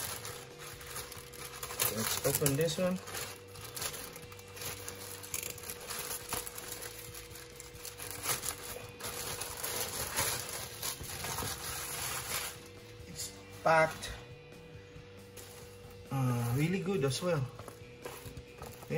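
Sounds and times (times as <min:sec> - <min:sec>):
plastic mailer bag crinkling: 0:00.0 - 0:12.8.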